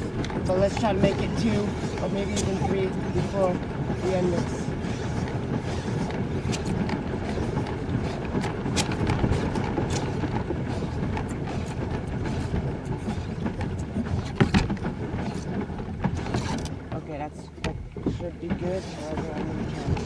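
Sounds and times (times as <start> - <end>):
low steady rumbling: 0.0 - 20.0.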